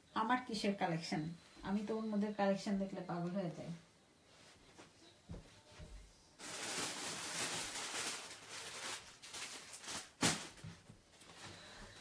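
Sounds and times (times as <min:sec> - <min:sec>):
plastic packaging rustling: 0:06.4 - 0:11.6.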